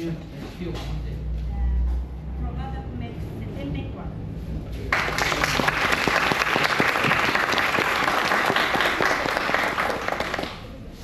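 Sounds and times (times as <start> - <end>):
group applauding: 4.9 - 10.8.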